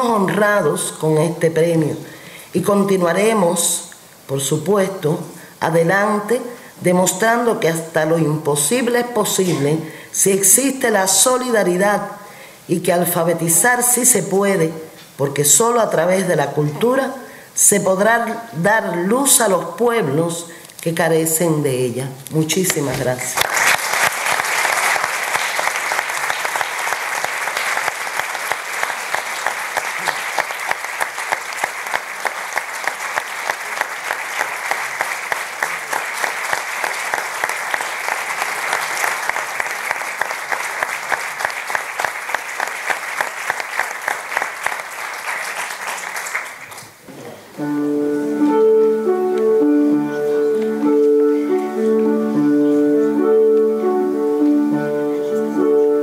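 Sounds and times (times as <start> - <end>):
audience applauding: 22.7 - 47.0
piano playing chords: 47.6 - 56.0.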